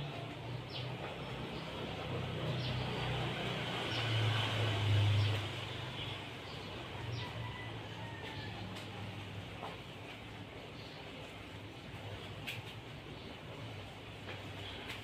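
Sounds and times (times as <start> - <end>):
vehicle engine rumbling past: 0.0 - 9.7.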